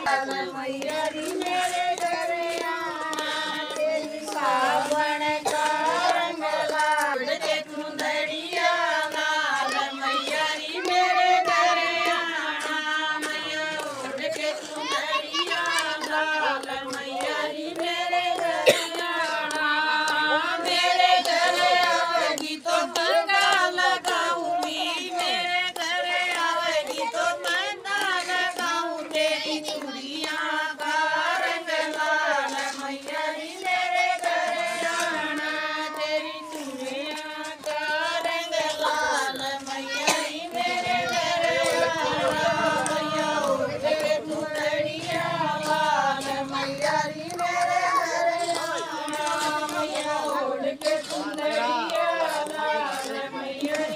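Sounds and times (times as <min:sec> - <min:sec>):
people clapping: 0:00.0 - 0:53.9
women singing together: 0:00.0 - 0:53.9.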